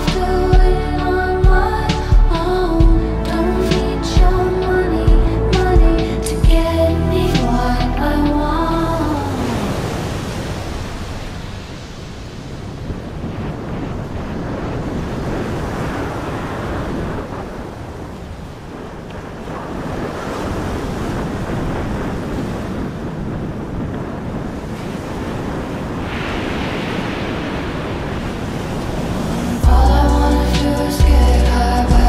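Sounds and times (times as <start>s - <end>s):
wind buffeting microphone: 0.0s - 32.0s
surf washing on beach: 9.0s - 29.8s.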